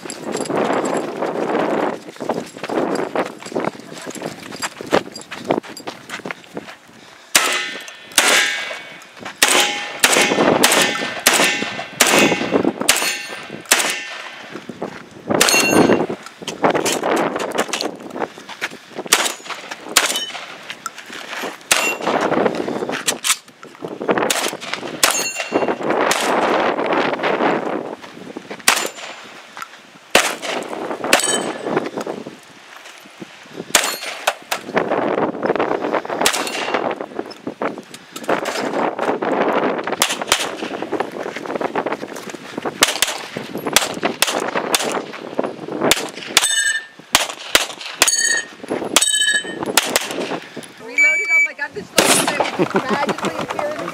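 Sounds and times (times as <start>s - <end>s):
pistol shots: 7.3s - 14.4s, 19.1s - 20.5s, 21.7s - 22.2s, 28.7s - 29.2s, 30.1s - 31.6s, 33.7s - 34.4s, 36.2s - 36.8s, 40.0s - 40.8s, 42.8s - 45.1s, 45.9s - 48.3s, 49.8s - 50.4s, 52.0s - 52.5s
rifle shots: 7.3s - 14.4s, 19.1s - 20.5s, 21.7s - 22.2s, 24.3s - 26.5s, 28.7s - 29.2s, 30.1s - 31.5s, 36.2s - 36.8s, 40.0s - 40.8s, 42.8s - 45.1s, 45.9s - 46.5s, 47.1s - 48.2s, 49.8s - 50.4s, 52.0s - 52.5s
steel targets ringing: 7.4s - 14.2s, 15.4s - 16.1s, 21.7s - 22.1s, 25.0s - 25.8s, 31.2s - 31.7s, 46.4s - 47.0s, 48.0s - 49.7s.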